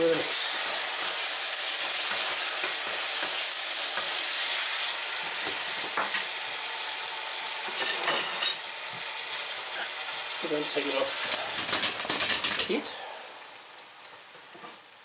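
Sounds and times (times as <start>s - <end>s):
food sizzling in a frying pan: 0.0s - 15.0s.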